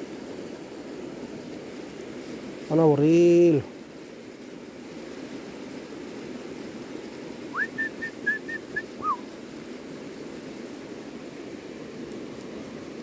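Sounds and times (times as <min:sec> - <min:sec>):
river water rushing: 0:00.0 - 0:13.0
whistled phrase: 0:07.5 - 0:09.2.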